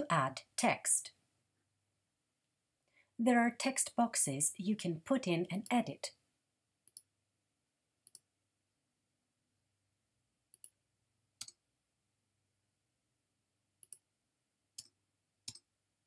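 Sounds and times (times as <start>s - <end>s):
computer mouse clicks: 6.8s - 7.1s, 8.0s - 8.3s, 10.5s - 10.8s, 11.4s - 11.6s, 13.8s - 14.1s, 14.8s - 15.7s.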